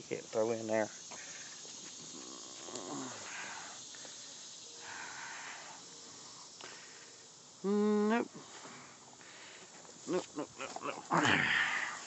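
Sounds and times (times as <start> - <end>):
steady low hiss: 0.0 - 12.0
soft breathing: 3.0 - 7.3, 8.3 - 9.9.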